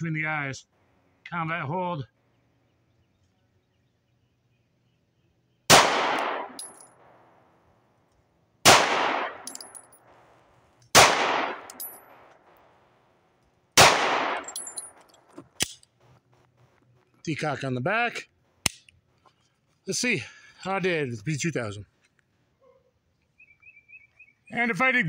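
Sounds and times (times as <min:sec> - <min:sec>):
pistol shots with echo: 0:05.7 - 0:07.3, 0:08.6 - 0:10.2, 0:10.9 - 0:12.6, 0:13.8 - 0:15.0.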